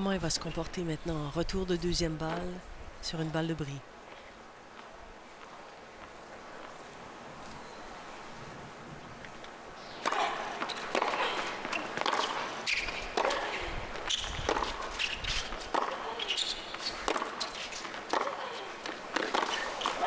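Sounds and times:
racket hitting tennis ball: 0:10.0 - 0:20.0.

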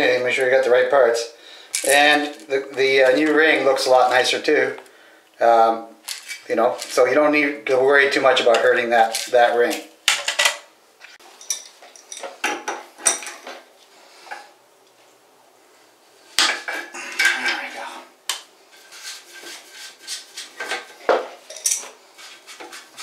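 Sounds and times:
pliers and wrench clinking: 0:11.4 - 0:12.4, 0:21.5 - 0:21.9.

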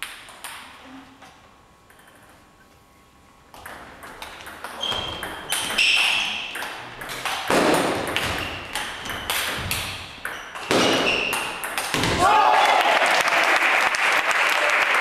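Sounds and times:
shoes squeaking on floor: 0:04.7 - 0:06.9, 0:08.2 - 0:11.6.

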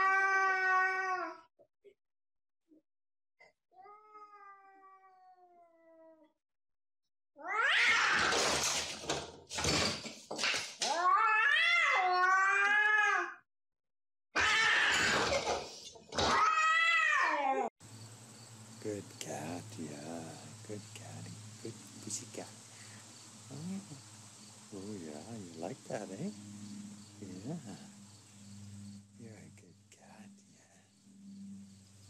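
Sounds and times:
cat caterwauling: 0:00.0 - 0:01.4, 0:03.8 - 0:06.3, 0:07.4 - 0:08.6, 0:10.8 - 0:13.4, 0:14.4 - 0:15.4, 0:16.2 - 0:17.7.

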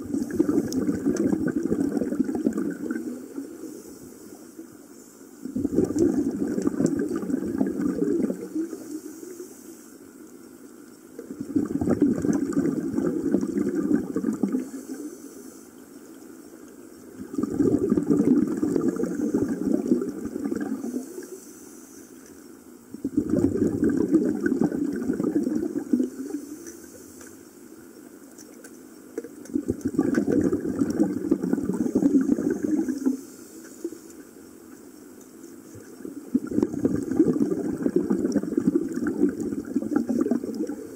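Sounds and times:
rush of bubbles: 0:00.0 - 0:03.8, 0:05.4 - 0:09.4, 0:11.2 - 0:15.1, 0:17.2 - 0:21.4, 0:22.9 - 0:26.6, 0:29.2 - 0:33.2, 0:35.8 - 0:40.9.

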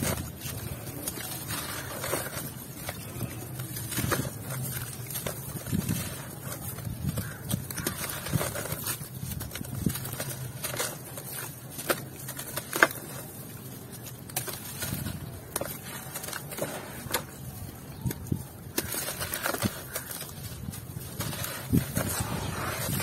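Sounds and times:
dry dirt crunching by hand: 0:00.0 - 0:23.0.

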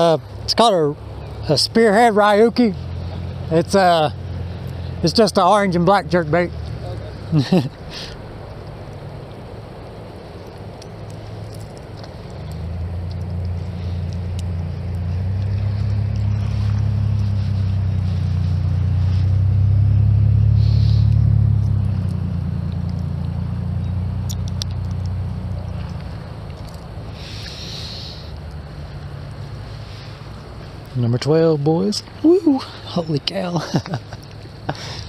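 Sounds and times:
passing motor engine hum: 0:00.0 - 0:35.0
faint ticks: 0:10.4 - 0:16.4, 0:24.2 - 0:29.4.

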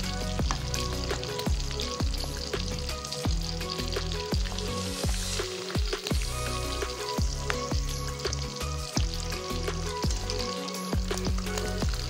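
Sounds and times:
fish frying in hot oil: 0:00.0 - 0:12.0
music with thudding beat: 0:00.0 - 0:12.0.

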